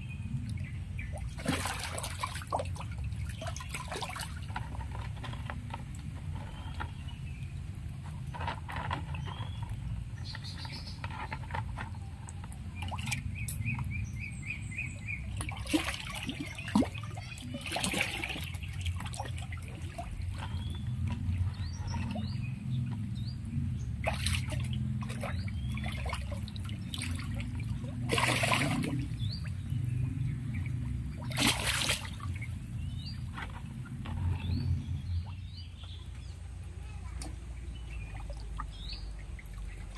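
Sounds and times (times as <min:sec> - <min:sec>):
low water rumble: 0:00.0 - 0:39.9
small birds chirping: 0:00.0 - 0:39.9
fish splashing in water: 0:00.9 - 0:05.6, 0:10.2 - 0:34.0.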